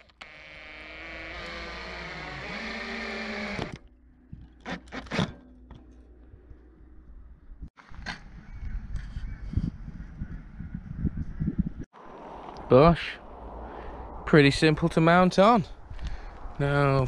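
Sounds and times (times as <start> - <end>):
drill motor whirring: 0.2 - 3.8.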